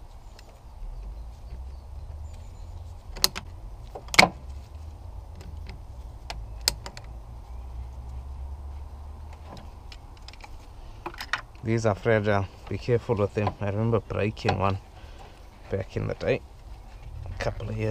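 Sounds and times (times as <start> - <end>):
low steady rumble: 0.0 - 17.9
tools and hose fittings clicking: 5.4 - 7.1.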